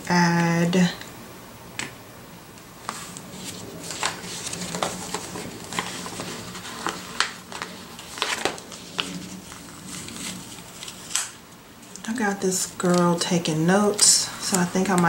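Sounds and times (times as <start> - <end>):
paper rustling: 2.8 - 15.0.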